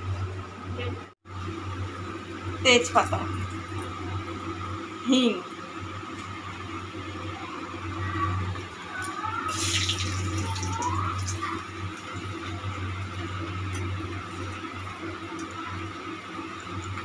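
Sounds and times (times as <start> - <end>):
steady low hum: 0.0 - 17.0
spices sizzling in hot oil: 9.5 - 17.0.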